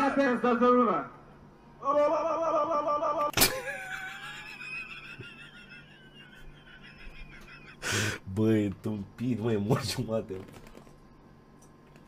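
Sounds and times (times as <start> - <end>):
man's wheezing laugh: 3.4 - 8.2.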